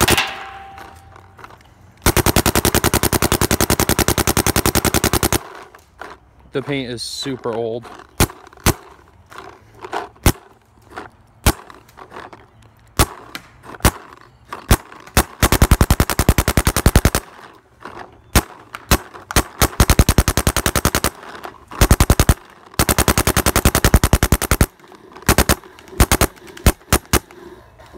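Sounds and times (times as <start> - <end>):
paintball marker firing: 2.0 - 5.8, 7.9 - 9.4, 10.2 - 10.6, 11.4 - 11.8, 13.0 - 27.4.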